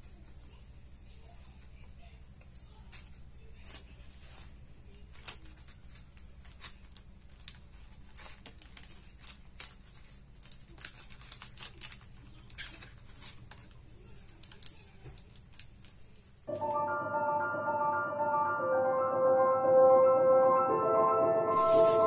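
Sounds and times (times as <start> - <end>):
snack wrappers crinkling: 2.9 - 16.4.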